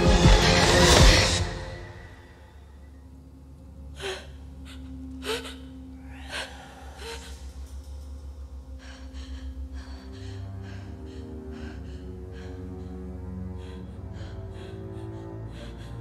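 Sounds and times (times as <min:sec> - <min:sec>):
low drone: 0:00.0 - 0:16.0
shaky breaths: 0:04.0 - 0:16.0
woman gasping: 0:04.0 - 0:16.0.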